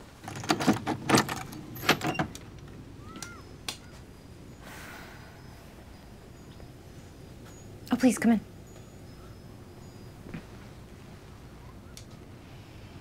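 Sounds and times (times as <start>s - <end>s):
keys jangling at door lock: 0.3s - 2.5s.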